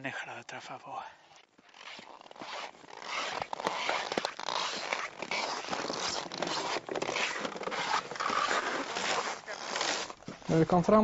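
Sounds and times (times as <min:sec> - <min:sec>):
footsteps crunching in snow: 0:01.2 - 0:11.0.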